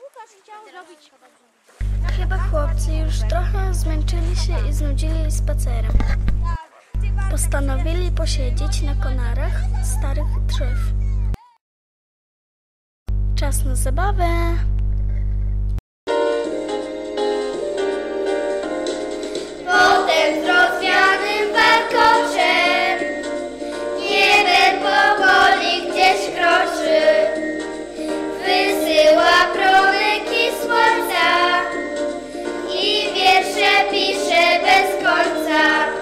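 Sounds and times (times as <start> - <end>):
keyboard accompaniment: 16.1 - 36.0
children singing: 19.5 - 36.0.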